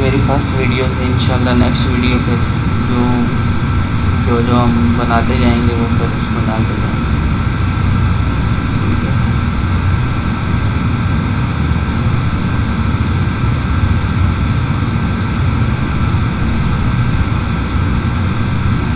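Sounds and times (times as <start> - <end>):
high whining tones: 0.0 - 18.9
mechanical hum and hiss: 0.0 - 18.9.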